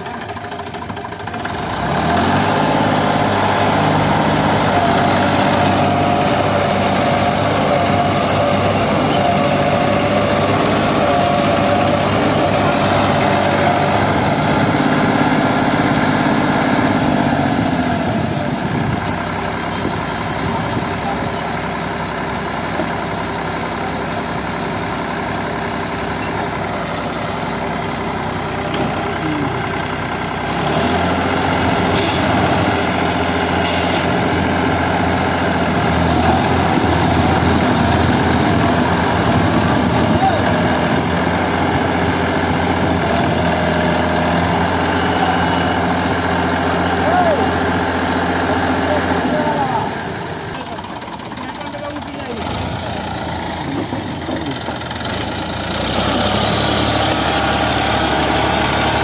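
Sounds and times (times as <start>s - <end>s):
tractor diesel engine revving: 0.0s - 59.0s.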